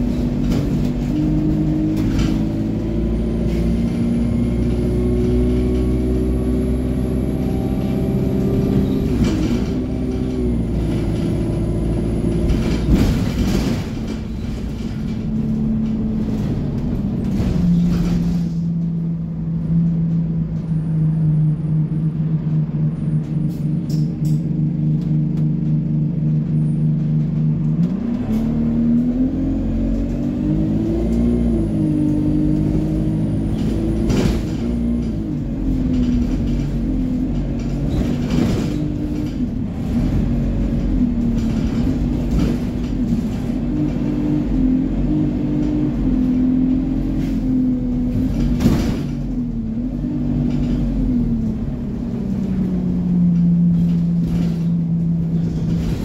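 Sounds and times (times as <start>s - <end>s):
bus engine pulling away: 0.0s - 56.0s
knocks and rattles: 12.2s - 18.9s.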